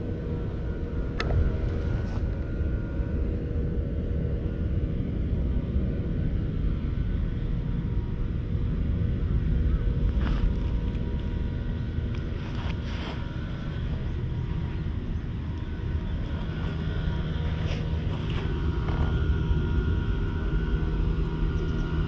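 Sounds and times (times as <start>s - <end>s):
low outdoor rumble: 0.0s - 22.0s
faint rustles: 12.3s - 15.3s.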